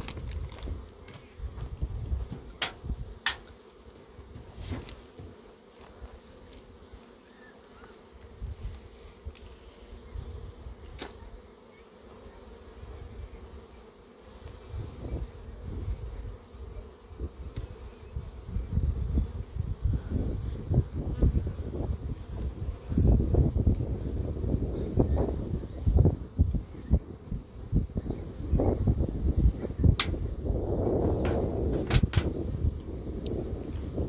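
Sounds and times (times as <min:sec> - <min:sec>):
clicks and knocks of hive frames: 0:00.0 - 0:06.0, 0:10.8 - 0:11.2, 0:29.8 - 0:30.2, 0:31.2 - 0:32.4
bees buzzing: 0:00.0 - 0:34.0.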